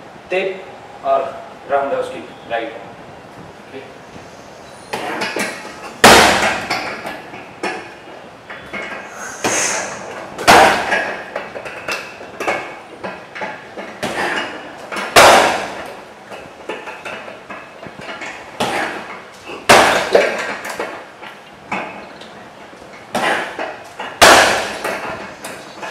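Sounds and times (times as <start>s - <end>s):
kicks thudding on punching bag: 5.0s - 7.8s, 10.4s - 11.2s, 12.6s - 15.9s, 17.5s - 20.6s, 23.1s - 25.9s.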